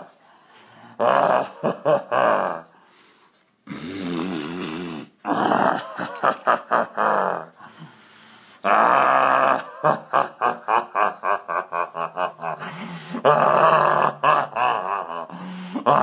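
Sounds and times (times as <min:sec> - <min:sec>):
man's wordless vocal sounds: 0:12.4 - 0:16.0.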